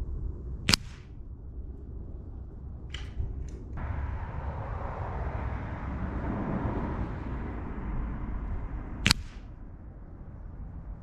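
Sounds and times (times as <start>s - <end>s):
low rushing background: 0.0s - 11.0s
air rifle shot crack: 0.7s - 1.3s, 2.9s - 3.8s, 9.0s - 9.6s.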